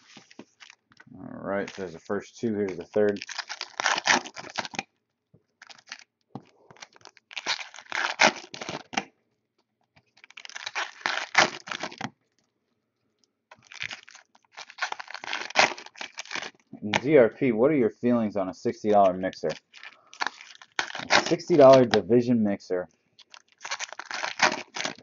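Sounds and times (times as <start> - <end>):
wrapping being torn and crinkled: 0.0 - 4.9, 5.6 - 9.0, 10.0 - 12.5, 13.5 - 17.0, 18.9 - 22.0, 23.2 - 25.0.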